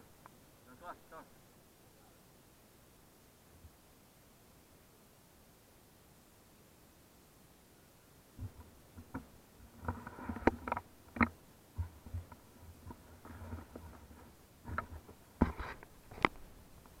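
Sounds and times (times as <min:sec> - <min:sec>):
rubbing and rustling: 0:08.4 - 0:17.0.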